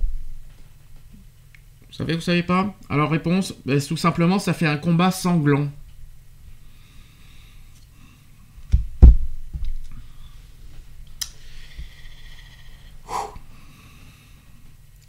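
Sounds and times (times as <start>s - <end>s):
low thumps: 8.7s - 9.8s
breath-like rush: 11.4s - 14.4s.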